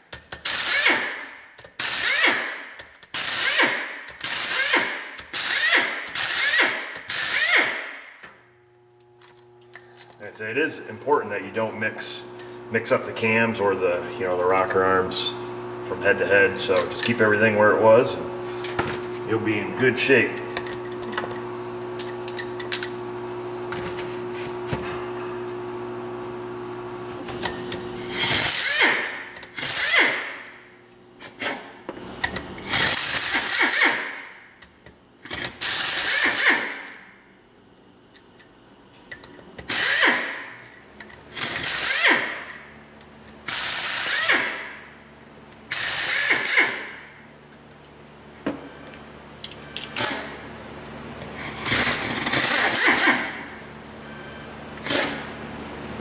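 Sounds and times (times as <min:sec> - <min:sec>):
pneumatic impact wrench: 0:00.0 - 0:08.3, 0:27.2 - 0:30.6, 0:31.2 - 0:37.1, 0:39.0 - 0:42.8, 0:43.4 - 0:44.9, 0:45.7 - 0:47.2, 0:49.8 - 0:50.4, 0:51.3 - 0:53.7, 0:54.8 - 0:55.4
steady hum: 0:00.0 - 0:56.0.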